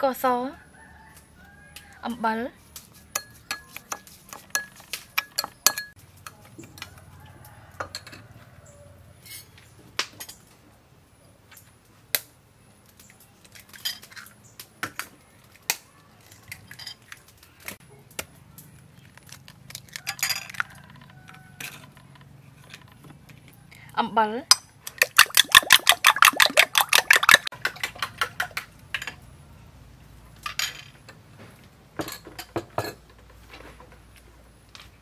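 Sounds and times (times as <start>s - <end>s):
metal spoon clinking on ceramic bowl: 3.2s - 6.0s.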